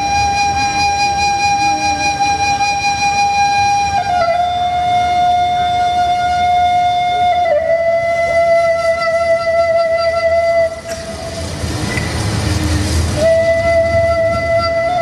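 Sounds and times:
wind instrument holding a note: 13.2s - 15.0s.

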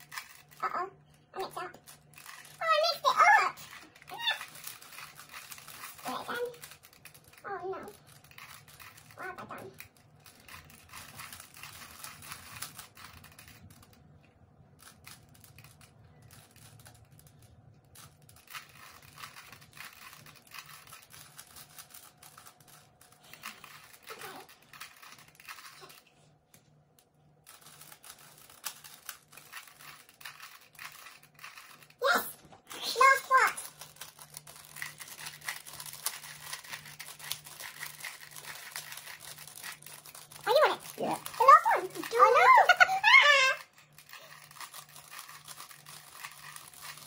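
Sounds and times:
puzzle cubes clicking: 27.5s - 47.0s.

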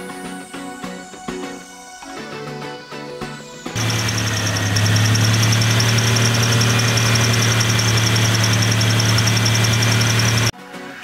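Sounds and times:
engine running with light ticking: 3.8s - 10.5s.

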